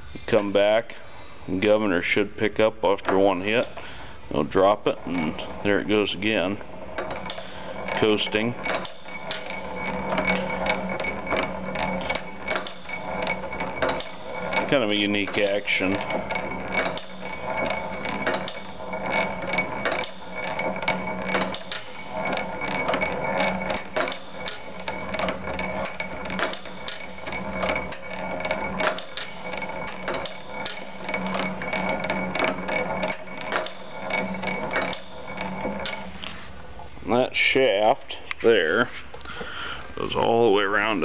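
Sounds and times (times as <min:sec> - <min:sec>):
engine levers clicking and clacking: 0:05.6 - 0:36.2.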